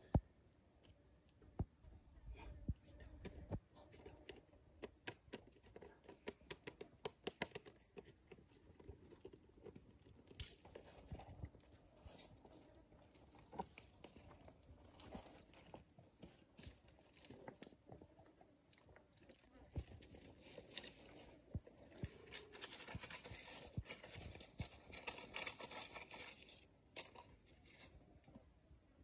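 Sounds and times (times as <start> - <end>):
claws clicking on stone: 4.2 - 11.5.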